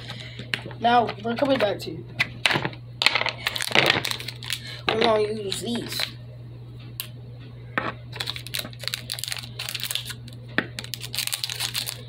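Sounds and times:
plastic crinkling: 0:03.4 - 0:06.1, 0:08.1 - 0:12.0.

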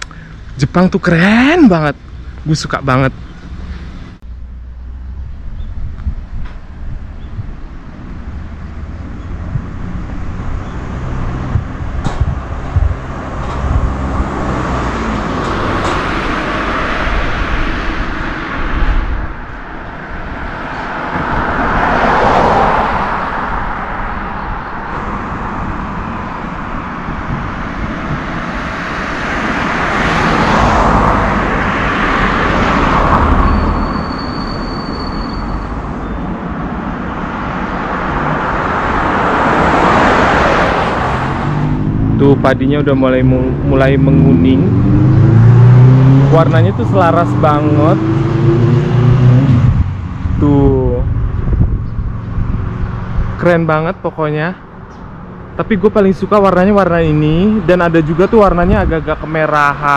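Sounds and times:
motor vehicles passing: 0:00.0 - 0:59.9
steady outdoor rumble: 0:00.0 - 0:59.9
sharp knocks: 0:11.3 - 0:14.1.

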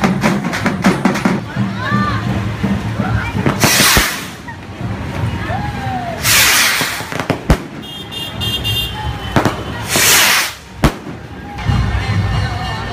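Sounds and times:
fireworks bangs: 0:02.4 - 0:05.3, 0:06.2 - 0:11.5
fireworks launching with hiss: 0:03.4 - 0:04.6, 0:06.1 - 0:08.0, 0:09.4 - 0:11.3.

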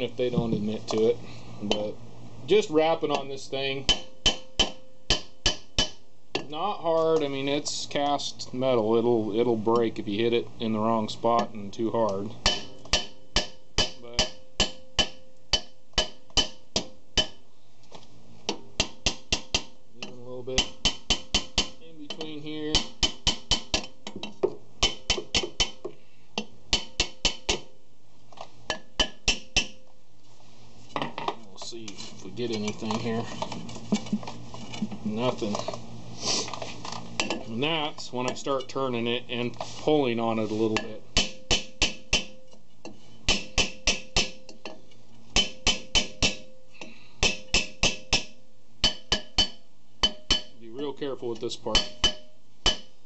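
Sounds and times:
hammer on metal brake drum: 0:03.8 - 0:06.5, 0:12.4 - 0:17.4, 0:18.5 - 0:19.8, 0:20.6 - 0:24.0, 0:24.8 - 0:26.0, 0:26.7 - 0:27.7, 0:40.8 - 0:42.5, 0:43.3 - 0:44.8, 0:45.4 - 0:46.6, 0:47.2 - 0:50.6, 0:51.8 - 0:53.0.

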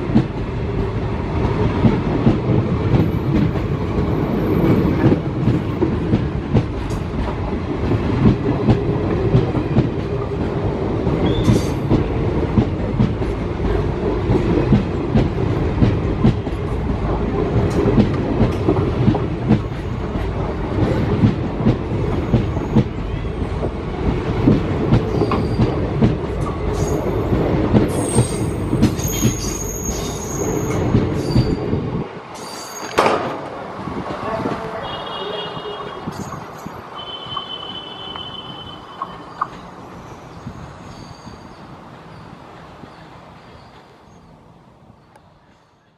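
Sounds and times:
train wheels clattering over rails: 0:00.0 - 0:39.8
high squeals: 0:40.4 - 0:42.3.

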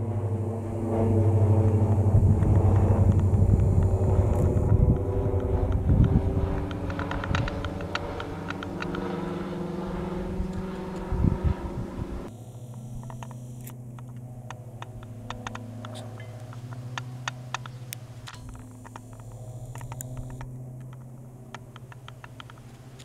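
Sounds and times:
light aircraft propeller drone: 0:00.0 - 0:23.0
faint clicks: 0:12.6 - 0:23.0.

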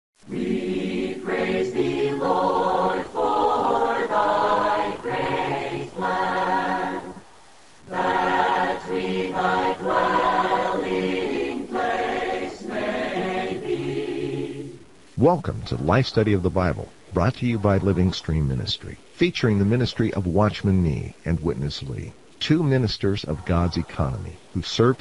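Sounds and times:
choir singing a cappella: 0:00.3 - 0:14.9, 0:15.6 - 0:18.9, 0:23.2 - 0:24.5.

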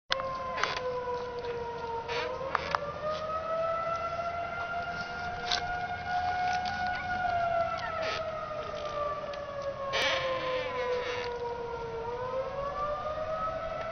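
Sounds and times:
tornado warning siren wailing: 0:00.1 - 0:13.9.

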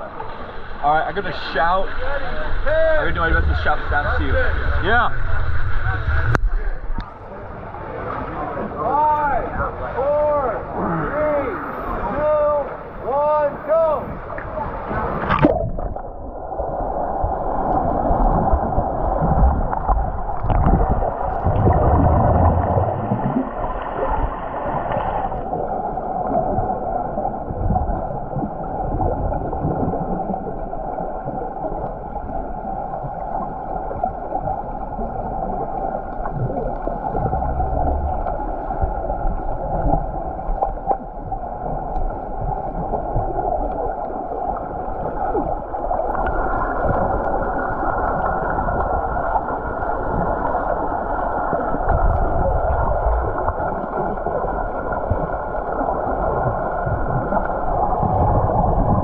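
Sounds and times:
muffled underwater hiss and hum: 0:00.0 - 0:26.1, 0:35.1 - 0:43.5.

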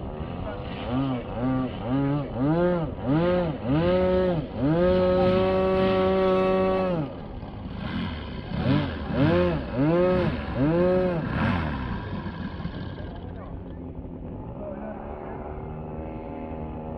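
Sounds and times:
model airplane engine revving: 0:00.8 - 0:14.0.

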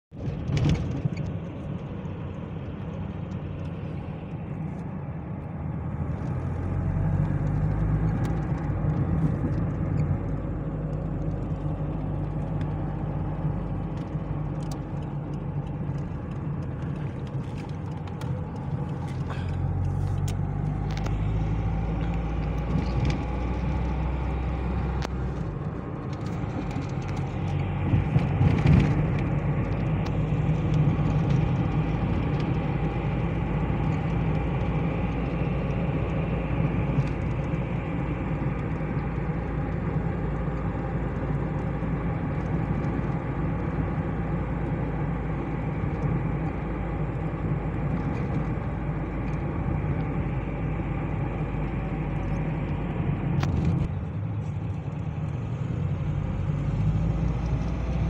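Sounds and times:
car engine and road noise: 0:00.0 - 0:58.0
small clicks and rattles: 0:06.1 - 0:44.8, 0:47.8 - 0:50.2.

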